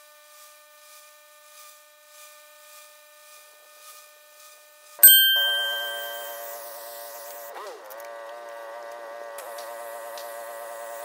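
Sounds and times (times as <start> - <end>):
bright bell ding: 5.0 - 7.4
steady buzzing tone: 5.0 - 7.5.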